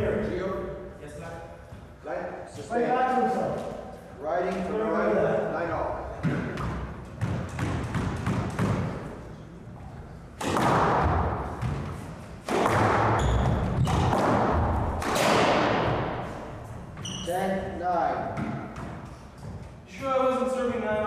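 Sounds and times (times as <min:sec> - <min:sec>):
squash ball thuds: 0:06.1 - 0:09.2, 0:10.4 - 0:17.0
shoe squeak: 0:13.2 - 0:14.1, 0:17.0 - 0:17.6.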